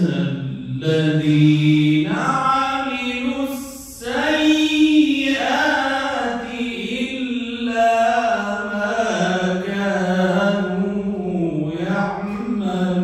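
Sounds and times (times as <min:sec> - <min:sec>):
man reciting melodically: 0:00.0 - 0:13.0.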